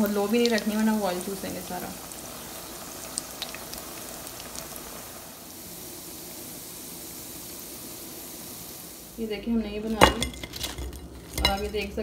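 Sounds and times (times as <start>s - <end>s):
oil popping: 0.0s - 5.2s
oil sizzling in deep fryer: 0.0s - 12.0s.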